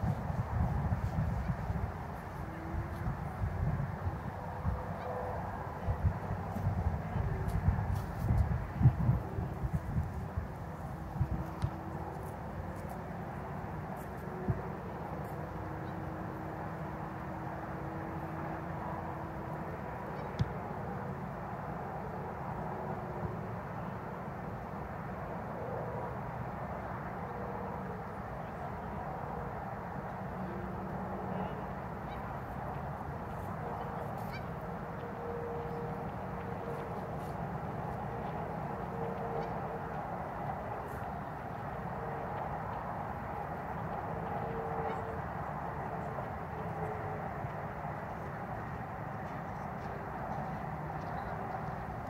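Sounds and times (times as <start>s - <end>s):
outdoor background noise: 0.0s - 52.0s
faint goose honking: 4.6s - 7.6s, 17.8s - 20.5s, 30.3s - 41.4s, 43.8s - 45.2s.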